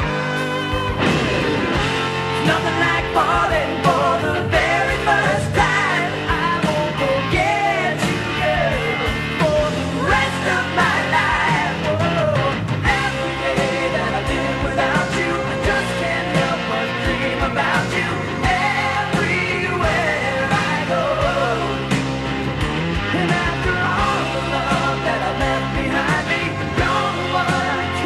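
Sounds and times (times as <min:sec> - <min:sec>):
rock song: 0:00.0 - 0:28.0
drum hits: 0:00.8 - 0:05.9
person singing: 0:02.4 - 0:21.8, 0:23.1 - 0:28.0.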